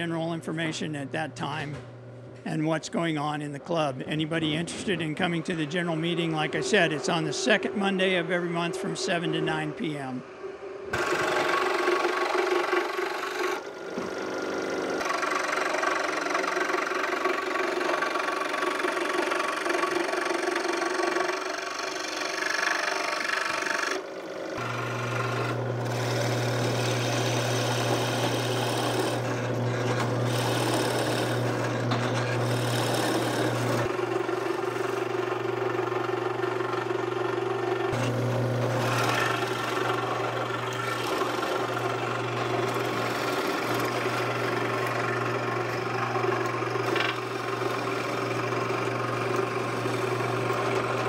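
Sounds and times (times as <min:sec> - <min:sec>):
scroll saw cutting wood: 0:04.1 - 0:09.8, 0:10.9 - 0:51.0
drill press boring wood: 0:10.9 - 0:51.0.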